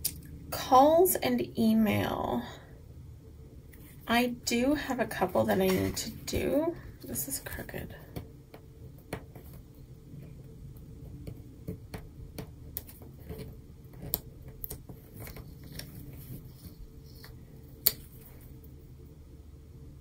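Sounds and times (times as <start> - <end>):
fingernails tapping on paper sticker: 11.0 - 15.4.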